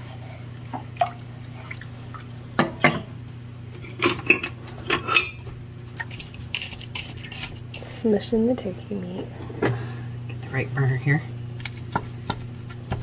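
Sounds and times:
light watery sounds: 0.0s - 2.5s
steady low hum: 0.0s - 13.0s.

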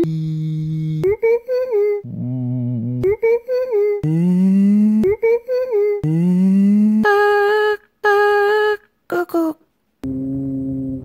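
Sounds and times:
person humming pitched notes: 0.0s - 9.2s, 10.0s - 11.0s.

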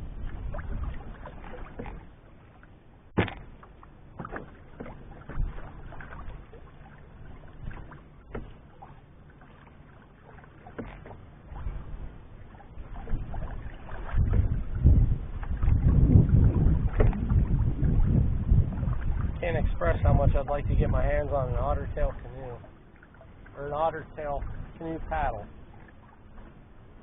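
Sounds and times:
wind rumble on microphone: 0.0s - 2.1s, 5.0s - 8.5s, 11.5s - 22.7s, 23.5s - 25.8s
paddle splashing in water: 0.0s - 27.0s.

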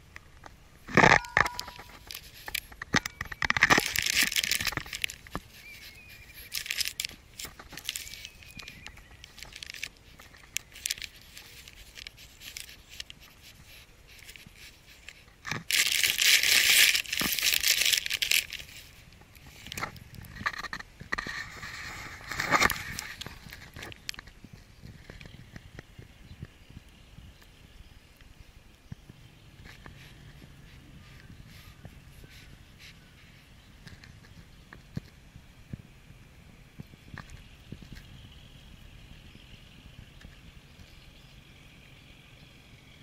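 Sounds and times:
small clicks: 0.1s - 26.6s
foil packet crinkling: 0.9s - 20.6s.

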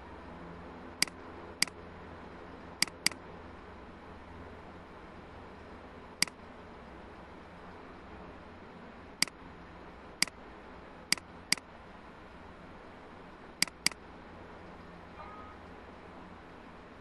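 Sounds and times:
computer mouse clicking: 1.0s - 1.8s, 2.8s - 3.2s, 11.1s - 11.6s, 13.6s - 14.0s.

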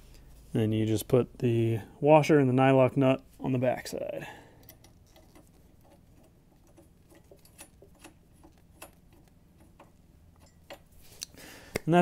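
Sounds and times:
small metal clicks of nut fitting: 4.6s - 5.6s.

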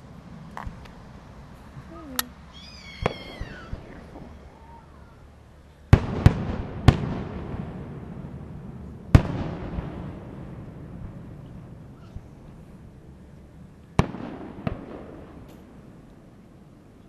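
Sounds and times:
rolling low echo: 0.0s - 17.0s
fireworks bursting: 2.2s - 11.8s, 14.0s - 16.0s.

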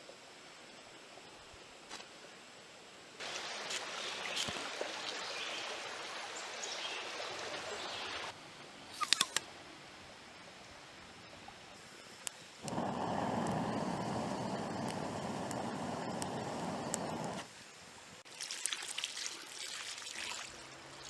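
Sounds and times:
outdoor hiss: 0.0s - 21.0s
faint chirps: 11.2s - 17.4s
sharp clicks: 12.3s - 17.4s.

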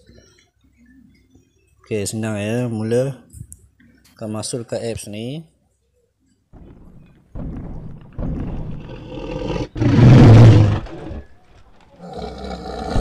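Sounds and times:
dinosaur roar: 8.4s - 13.0s.

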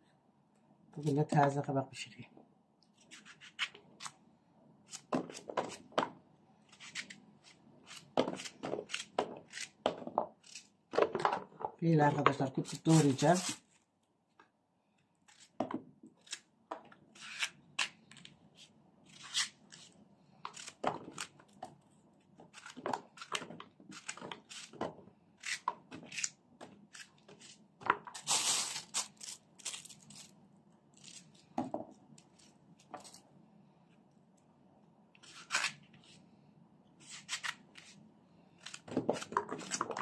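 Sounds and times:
knife cutting zucchini: 4.8s - 5.9s, 6.7s - 11.1s, 12.2s - 13.6s, 17.1s - 21.5s, 22.4s - 28.3s, 35.2s - 36.2s, 37.0s - 38.0s, 38.6s - 40.0s.

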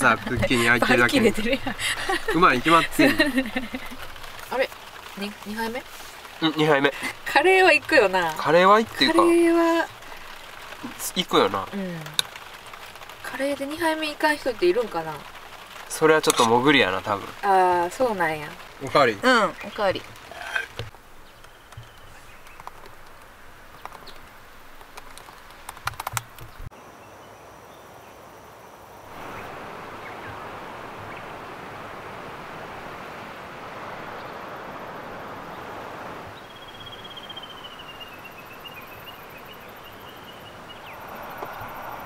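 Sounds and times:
river water running: 0.0s - 42.0s
bird singing high call: 36.4s - 41.0s.

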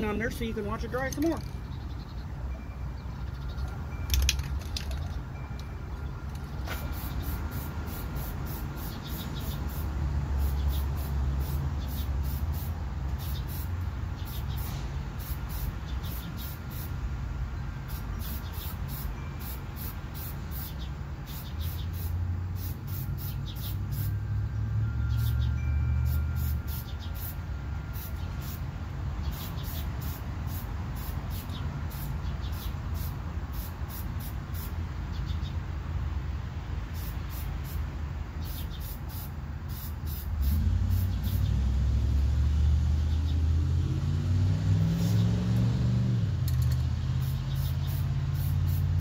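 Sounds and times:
vehicle engine running: 38.8s - 49.0s.

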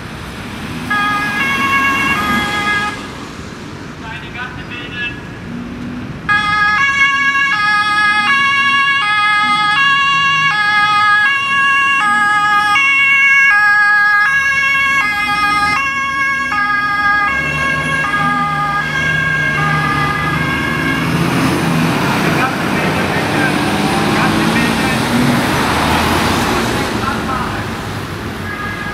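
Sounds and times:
heavy truck engine rumble: 0.0s - 28.9s
two-tone emergency siren: 0.9s - 3.1s, 6.3s - 23.4s, 28.4s - 28.9s.

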